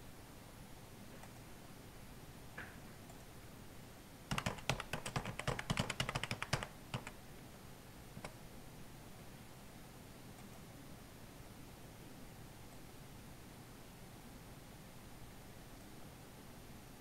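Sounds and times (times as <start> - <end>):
keyboard keystrokes: 4.3 - 7.2.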